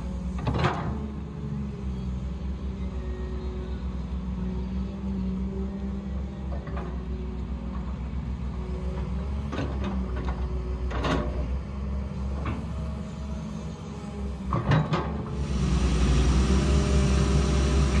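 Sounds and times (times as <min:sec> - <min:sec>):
diesel engine running: 0:15.2 - 0:18.0.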